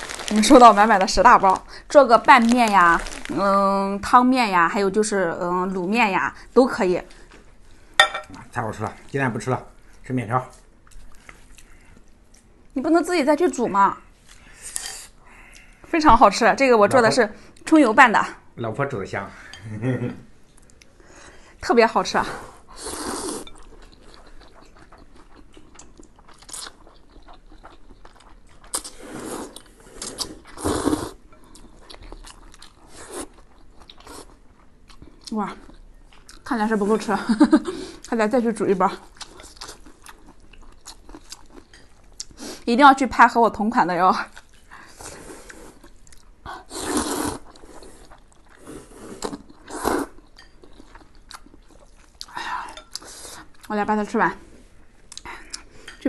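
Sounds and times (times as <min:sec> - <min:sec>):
person slurping noodles: 0:22.7 - 0:23.4, 0:28.8 - 0:31.2, 0:46.7 - 0:50.2.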